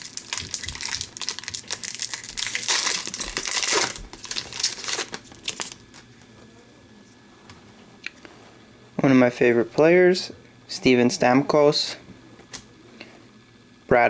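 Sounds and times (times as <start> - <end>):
foil wrapper tearing and crinkling: 0.0 - 6.1.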